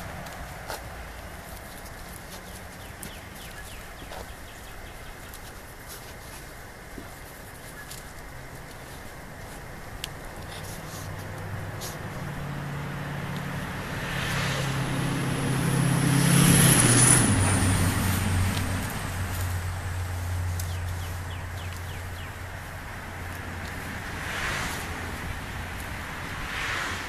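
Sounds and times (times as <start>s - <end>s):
vehicle driving past: 10.8s - 27.0s.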